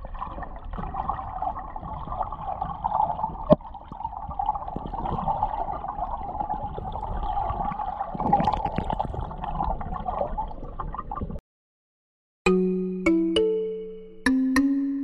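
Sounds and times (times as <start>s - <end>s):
underwater gurgling water: 0.0s - 11.4s.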